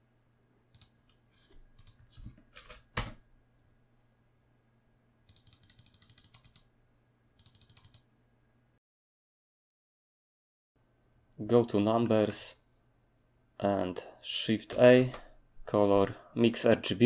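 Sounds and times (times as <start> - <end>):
keyboard keystrokes: 7.4 - 8.0.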